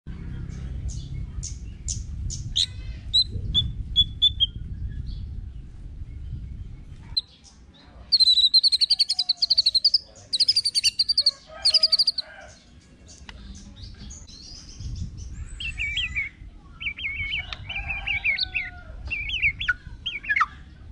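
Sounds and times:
bird singing whistled notes: 0:00.9 - 0:05.3, 0:08.1 - 0:12.2, 0:13.8 - 0:20.6.

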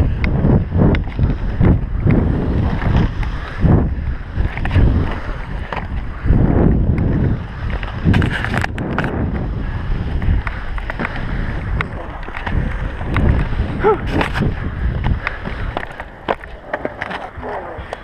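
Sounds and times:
skate wheels rolling on concrete: 0:00.0 - 0:18.0
wind buffeting microphone: 0:00.0 - 0:18.0
sharp scraping clicks: 0:06.9 - 0:09.2.

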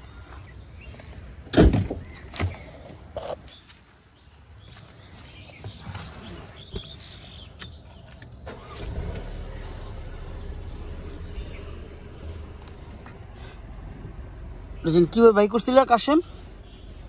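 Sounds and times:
car engine starting and idling: 0:08.1 - 0:16.1.

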